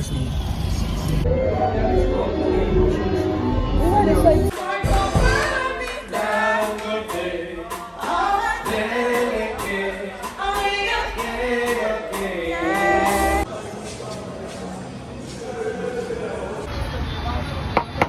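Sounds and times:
musical backing: 1.2 - 13.6
person singing: 1.3 - 13.5.

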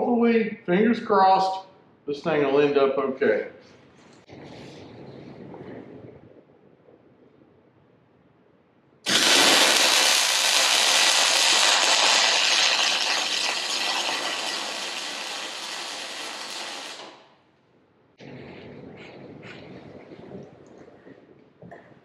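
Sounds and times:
welding arc crackling: 9.1 - 17.4.

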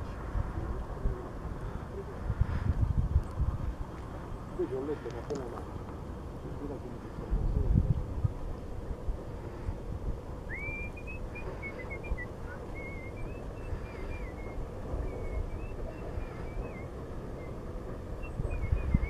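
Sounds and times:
wind buffeting microphone: 0.0 - 19.0
faint high whistled chirps: 10.4 - 19.0.

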